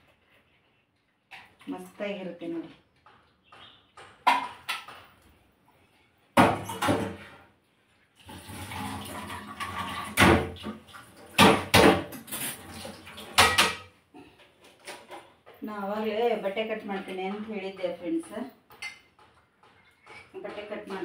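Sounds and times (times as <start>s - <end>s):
water running from a tap: 8.2s - 11.3s
steel kitchen vessels clanking: 8.8s - 15.4s, 16.4s - 21.0s.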